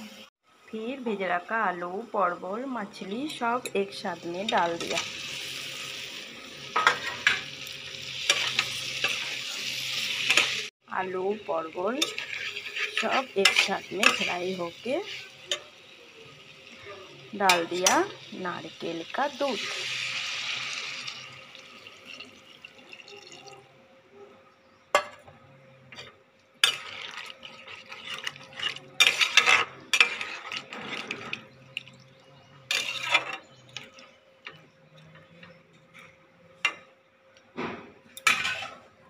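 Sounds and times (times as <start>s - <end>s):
liquid sizzling in pan: 2.0s - 23.5s, 25.9s - 34.4s, 38.2s - 38.9s
spatula scraping metal pan: 8.1s - 10.7s, 11.8s - 15.7s, 26.0s - 31.6s, 32.7s - 33.6s, 38.2s - 38.9s.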